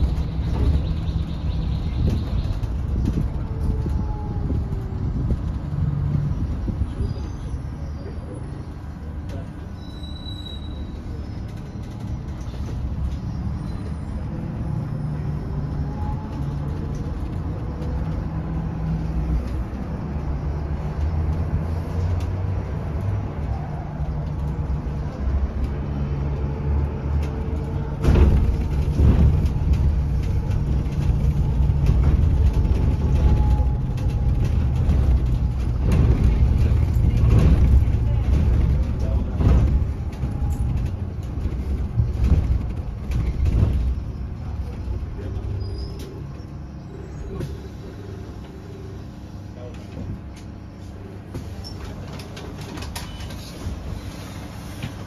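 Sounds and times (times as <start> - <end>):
bus road and tyre rumble: 0.0 - 55.0
knocks and rattles: 27.1 - 45.3.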